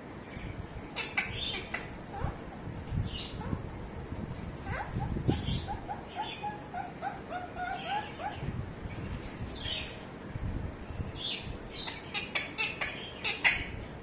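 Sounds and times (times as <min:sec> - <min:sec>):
parakeet calling: 0:00.3 - 0:03.6, 0:04.7 - 0:08.5, 0:11.2 - 0:13.9.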